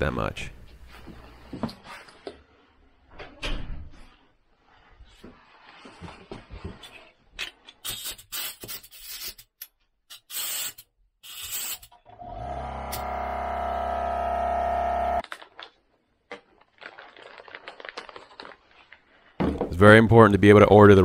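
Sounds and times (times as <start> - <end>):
air compressor motor running: 12.1 - 15.2.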